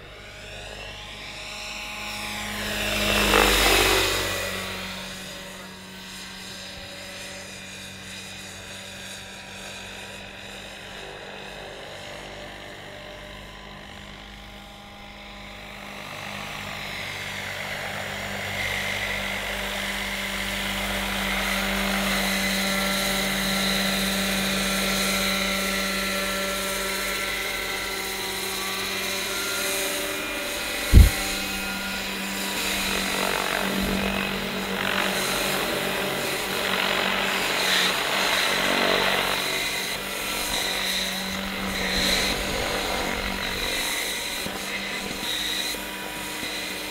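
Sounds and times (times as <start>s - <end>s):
model helicopter rotor: 0.0s - 46.9s
low thump: 30.8s - 32.0s.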